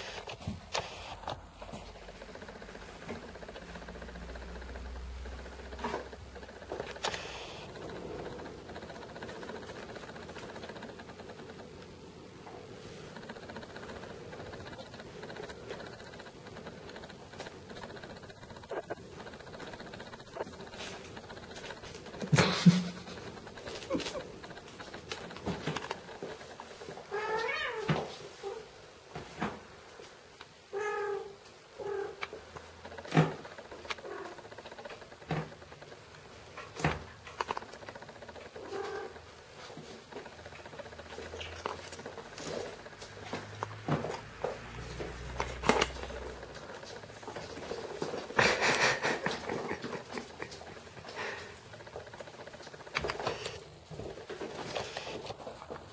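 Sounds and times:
camera lens hum: 0.0s - 11.9s.

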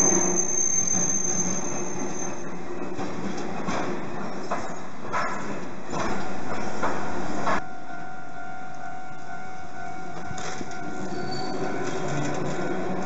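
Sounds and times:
tram wheel squeal: 0.0s - 3.0s, 8.4s - 13.0s
tram running noise: 0.0s - 13.0s.

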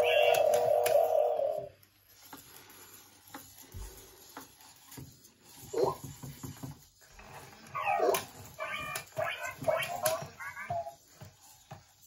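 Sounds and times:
toy robots chirping: 0.0s - 1.7s, 7.6s - 11.0s
faint clicks of moving parts: 1.8s - 5.6s.

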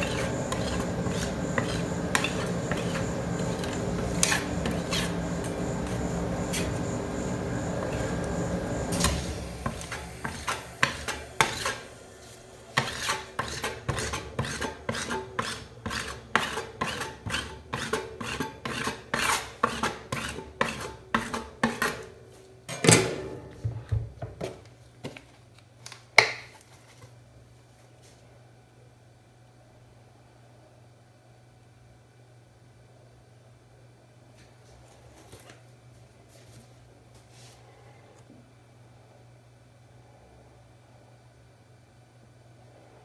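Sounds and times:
metal spatulas scraping cold plate: 0.0s - 6.8s, 9.0s - 11.9s, 12.7s - 22.1s.

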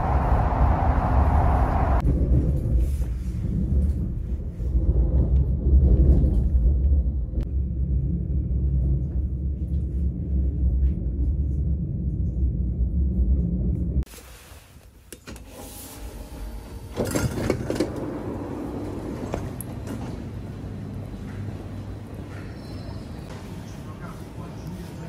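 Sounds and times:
station ambience: 0.0s - 2.0s, 16.0s - 25.0s
train running rumble: 16.2s - 23.9s.

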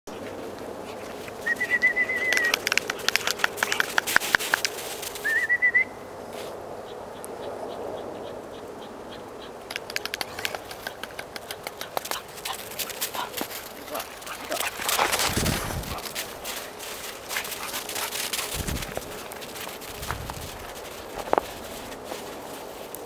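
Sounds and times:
footsteps crunching in snow: 4.1s - 5.3s, 12.0s - 23.0s
trilling whistle blast: 5.2s - 6.0s.

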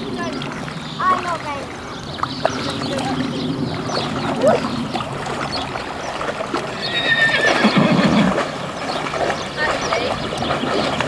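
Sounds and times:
water splashing: 0.0s - 11.0s
horse whinnying: 6.7s - 8.4s.

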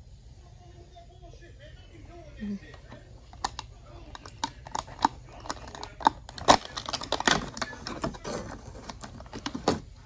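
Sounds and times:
plastic packaging clicks and crinkles: 3.3s - 10.0s
cardboard tearing: 4.5s - 10.0s.

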